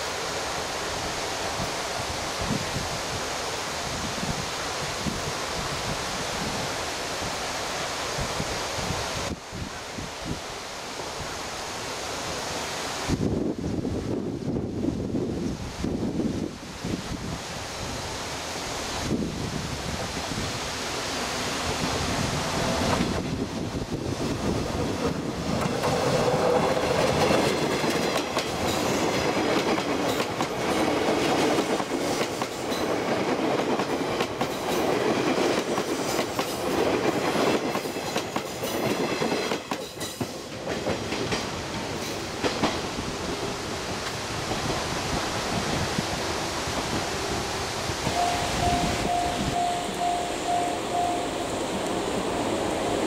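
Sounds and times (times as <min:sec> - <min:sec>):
electric train passing: 0:00.0 - 0:53.0
wheels clacking over rail joints: 0:24.4 - 0:43.0.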